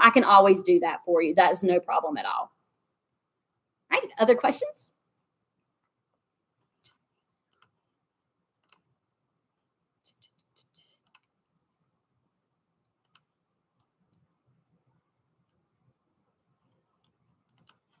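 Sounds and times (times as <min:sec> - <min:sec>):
keyboard and mouse clicking: 0:06.7 - 0:07.8, 0:08.6 - 0:08.9, 0:11.0 - 0:11.3, 0:12.8 - 0:13.3, 0:17.0 - 0:18.0.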